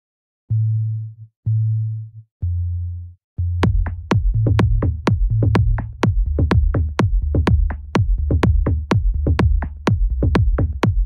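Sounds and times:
deep synth bass notes: 0.5s - 11.0s
drum machine beat: 3.6s - 11.0s.

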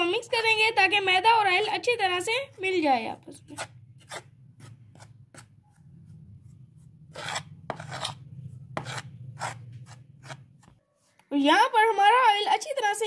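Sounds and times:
metal spoon scraping metal bowl: 3.4s - 5.5s, 6.9s - 10.7s.

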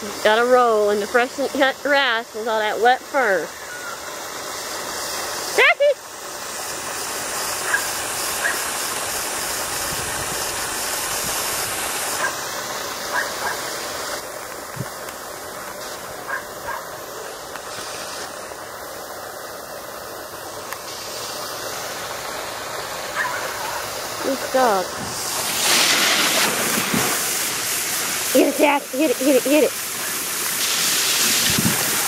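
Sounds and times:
garden hose spraying water: 0.0s - 32.0s
dog barking faintly: 23.2s - 23.9s.

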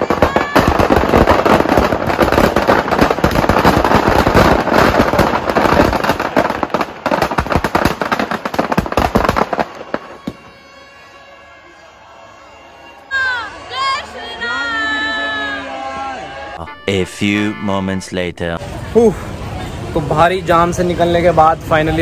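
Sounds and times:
firecrackers cracking and banging: 0.0s - 10.7s.

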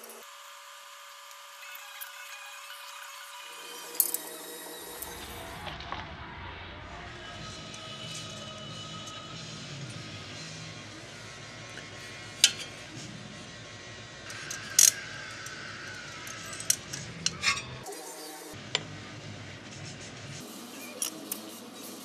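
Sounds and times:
wrench and metal parts clinking: 14.3s - 15.5s, 16.2s - 17.8s.

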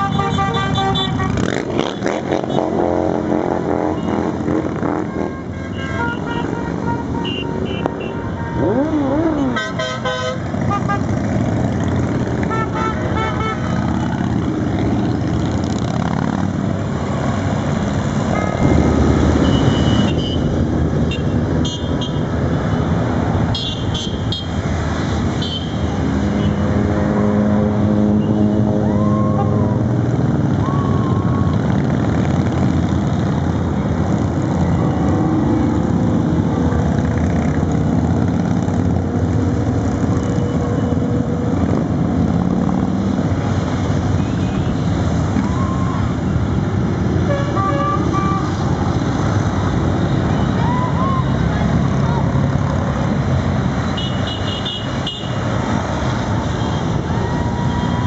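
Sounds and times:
motorcycle horns tooting: 0.0s - 14.2s, 18.3s - 22.3s, 23.5s - 24.6s, 47.2s - 48.6s, 53.9s - 55.5s
motorcycles riding past: 0.0s - 21.6s, 24.5s - 47.3s.

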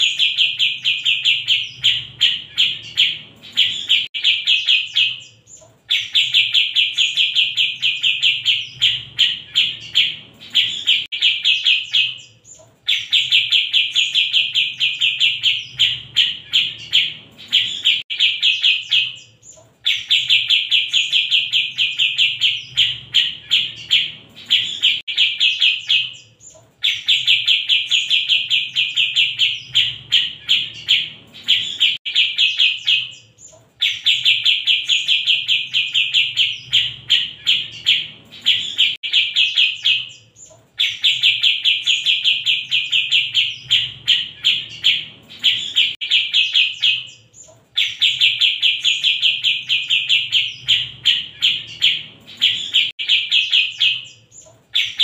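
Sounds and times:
bird chattering song: 0.0s - 55.0s.

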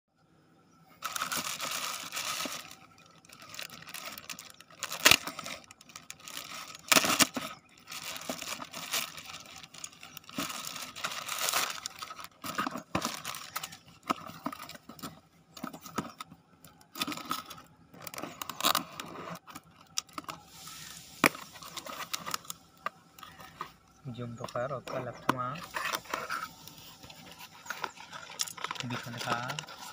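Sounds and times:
plastic bag ripping: 1.0s - 14.1s
plastic bag crinkling: 1.0s - 29.9s.

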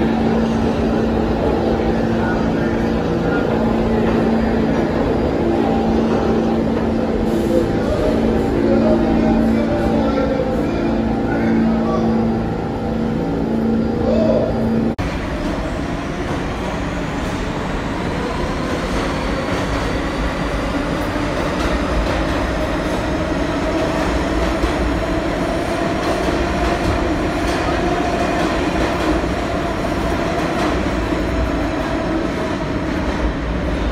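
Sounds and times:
train wheels rumbling on rails: 15.0s - 33.9s.

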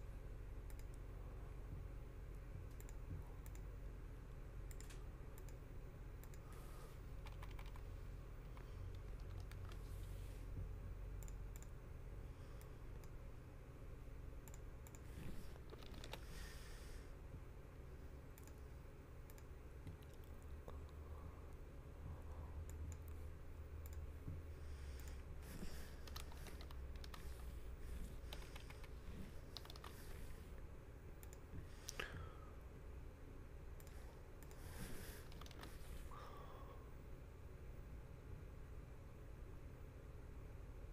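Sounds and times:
low steady hum: 0.0s - 40.9s
keyboard typing clicks: 0.6s - 1.0s, 2.6s - 3.7s, 4.7s - 5.6s, 6.2s - 6.4s, 7.2s - 7.8s, 8.4s - 9.8s, 11.2s - 11.8s, 14.4s - 16.2s, 18.3s - 18.6s, 19.2s - 21.0s, 25.0s - 27.4s, 28.3s - 30.1s, 31.2s - 32.0s, 35.2s - 35.9s.

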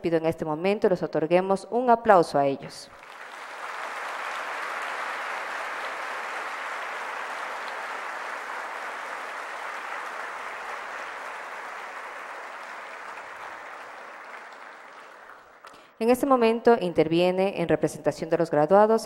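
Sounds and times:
audience applauding: 2.9s - 15.8s.

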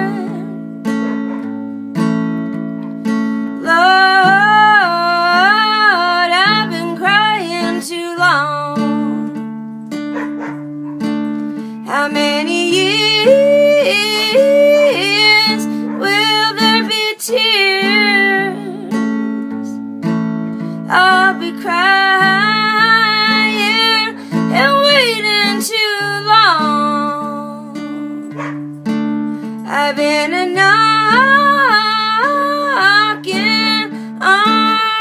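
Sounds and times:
wordless female vocal: 0.0s - 0.6s, 3.6s - 9.2s, 11.8s - 19.1s, 20.8s - 27.9s, 29.6s - 35.0s
acoustic guitar chords: 0.0s - 35.0s.

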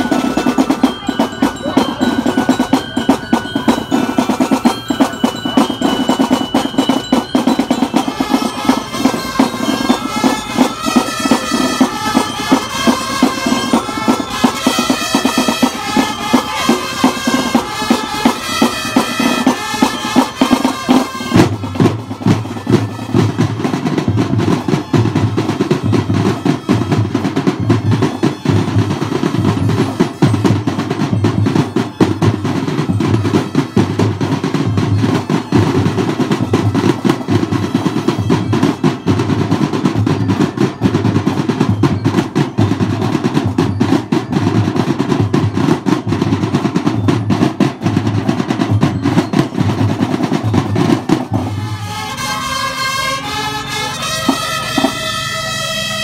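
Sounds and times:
snare drum rolls: 0.0s - 52.4s, 53.8s - 55.2s
wind instruments playing melody: 0.0s - 56.0s.

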